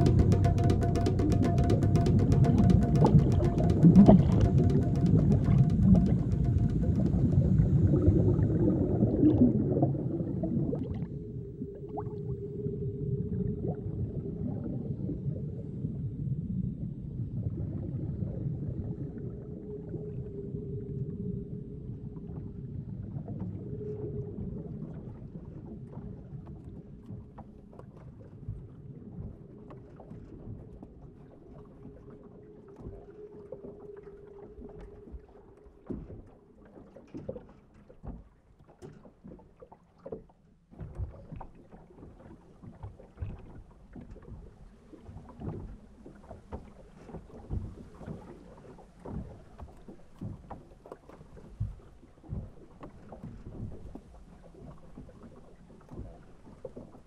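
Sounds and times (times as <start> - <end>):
soft knocks: 0.0 - 7.6
water lapping against boat: 0.0 - 11.2, 22.0 - 57.0
low steady hum: 0.0 - 24.9.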